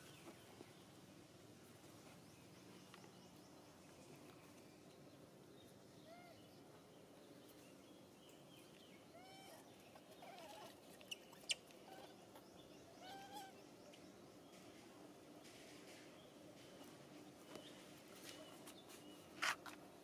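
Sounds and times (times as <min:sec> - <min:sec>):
low background hiss: 0:00.0 - 0:20.0
infant monkey squeaky calls: 0:10.2 - 0:12.2, 0:13.0 - 0:13.6.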